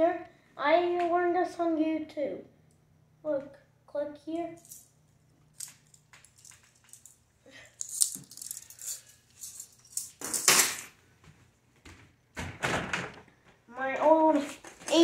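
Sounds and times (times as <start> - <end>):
handcuffs rattling and clinking: 4.6 - 10.9.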